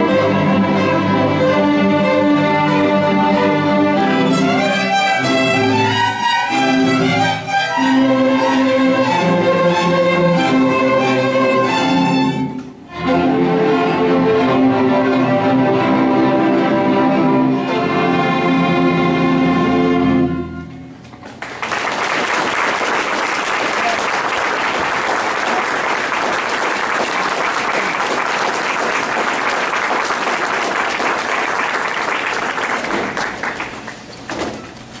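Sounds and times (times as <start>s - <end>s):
string orchestra chord: 0.0s - 20.9s
audience applauding: 21.3s - 34.1s.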